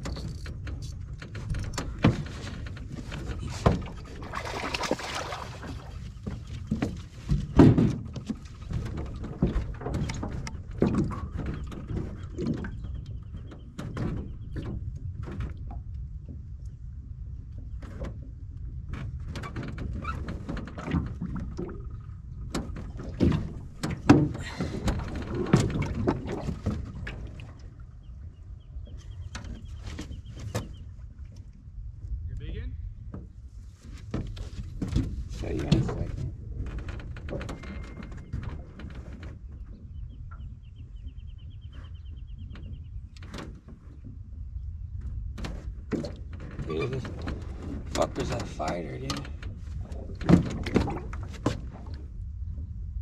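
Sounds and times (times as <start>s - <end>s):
knocks on aluminum boat: 6.8s - 8.4s.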